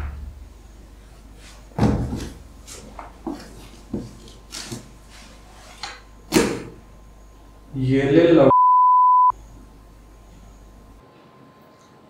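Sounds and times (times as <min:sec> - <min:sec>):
cardboard box thump: 0:01.8 - 0:02.3
cardboard knocking and scraping: 0:01.8 - 0:05.9.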